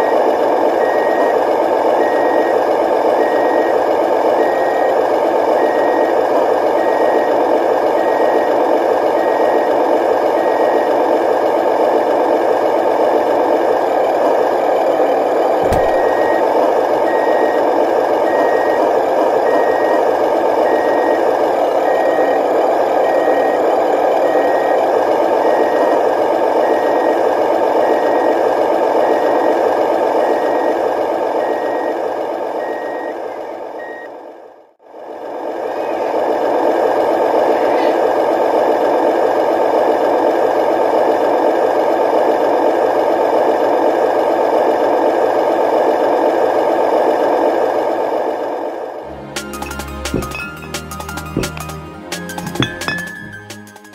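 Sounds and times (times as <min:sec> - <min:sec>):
truck engine drone: 0:00.0 - 0:53.9
reversing alarm beeping: 0:00.8 - 0:05.0, 0:05.6 - 0:07.4, 0:15.6 - 0:17.6, 0:18.2 - 0:24.8, 0:49.6 - 0:51.7, 0:52.5 - 0:53.4
short thump: 0:15.6 - 0:16.3, 0:50.1 - 0:50.4, 0:51.4 - 0:51.7.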